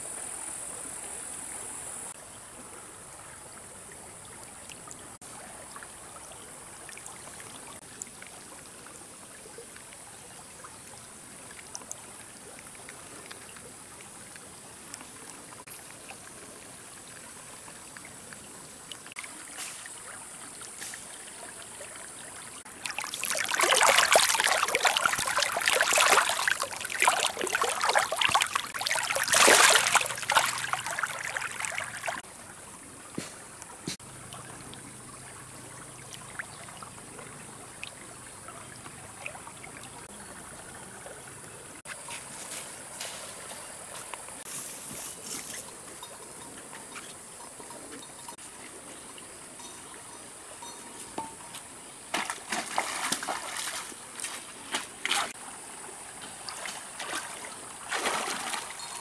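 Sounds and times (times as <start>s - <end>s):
water trickling: 2.7s - 44.5s, 55.3s - 59.0s
water splashing: 18.9s - 41.2s, 52.1s - 55.4s, 56.2s - 59.0s.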